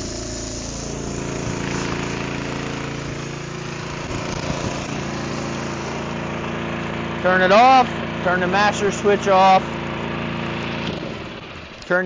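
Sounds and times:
hiss of spray jetting: 0.0s - 7.8s
sprayer engine running: 0.0s - 12.0s.

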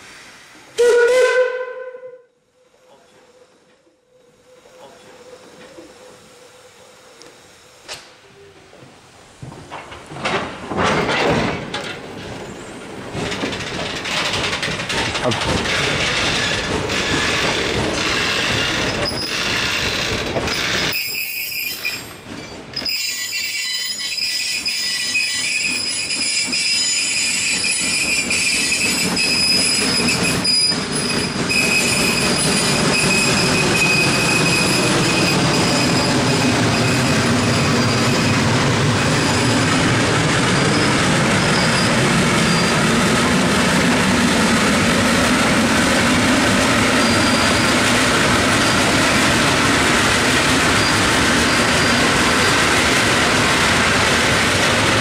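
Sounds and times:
steam locomotive running: 4.4s - 55.0s
clicking over rail joints: 8.7s - 12.4s, 13.0s - 20.9s
wheels squealing against rail: 15.2s - 39.8s, 40.4s - 43.0s, 46.8s - 47.8s, 50.6s - 52.6s.

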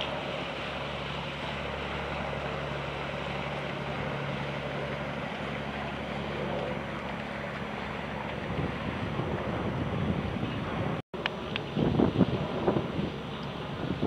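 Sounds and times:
low engine drone: 0.0s - 14.0s
wind hiss: 8.0s - 14.0s.

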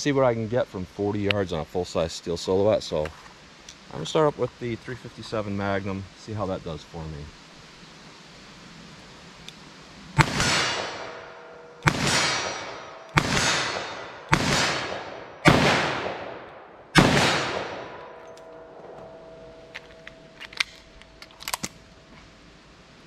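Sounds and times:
revolver shots echoing: 10.2s - 19.6s.

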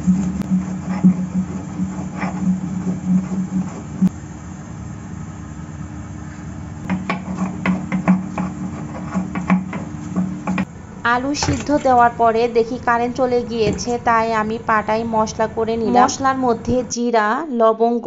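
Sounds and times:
stone grinding spices: 6.9s - 10.7s.

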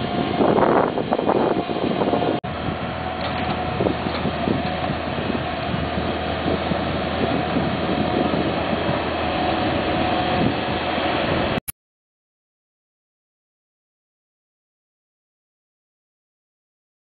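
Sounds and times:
loader engine running under load: 0.0s - 11.6s.

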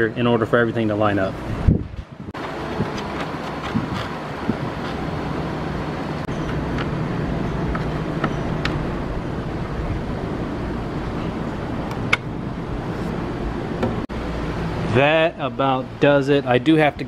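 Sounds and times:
steady low rumble: 1.3s - 17.0s.

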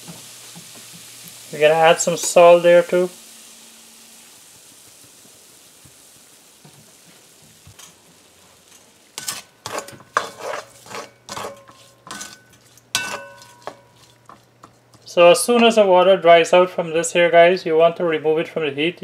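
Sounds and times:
shrimp hissing in a pan: 0.0s - 15.2s
spoon scraping a metal pan: 9.2s - 15.0s.

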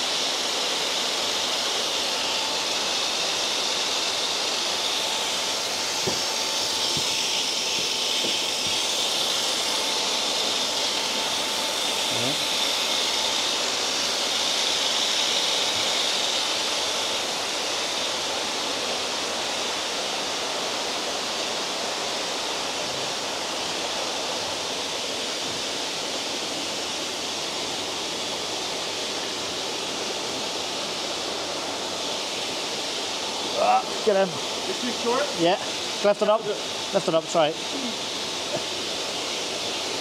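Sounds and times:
running water rushing: 0.0s - 40.0s.

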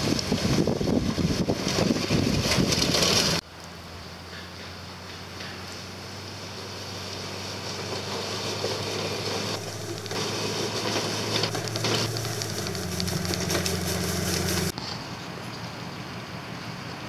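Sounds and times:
rake scraping mud and gravel: 0.0s - 3.4s, 6.6s - 15.1s
pickup truck engine running: 7.5s - 14.7s.

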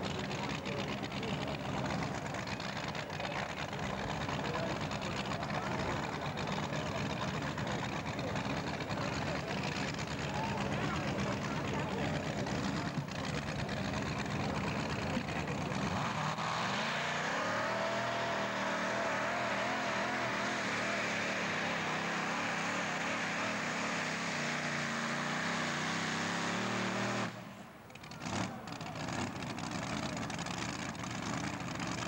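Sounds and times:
tractor racing engine revving: 0.0s - 32.0s.

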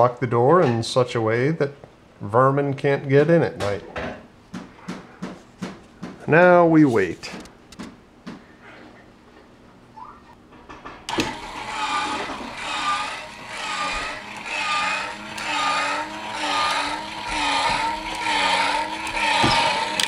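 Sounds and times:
electric motor whining: 11.1s - 20.0s
motor switch click: 11.1s - 20.0s.

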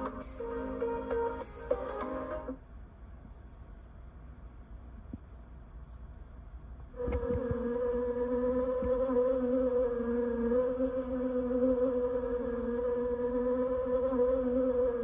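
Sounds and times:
bees buzzing: 7.0s - 15.0s.

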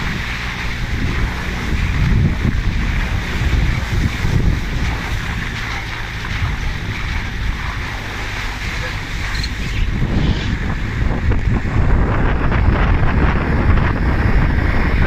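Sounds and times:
engine running at low revs: 0.0s - 15.0s
wind rumbling on microphone: 0.0s - 15.0s.

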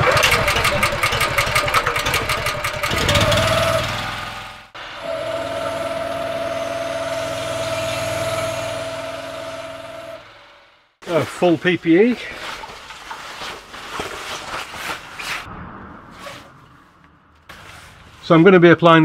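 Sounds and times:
pressure washer engine running: 0.0s - 10.8s
constant whine: 4.6s - 11.0s.

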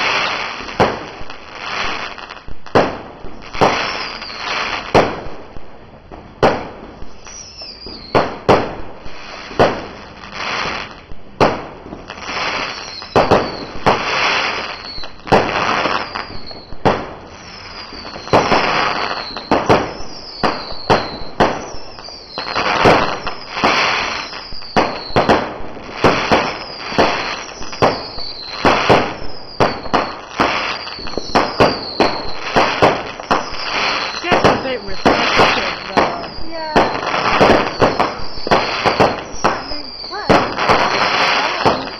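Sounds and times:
fireworks crackling: 0.0s - 41.9s
fireworks launching and bursting: 0.0s - 41.9s.

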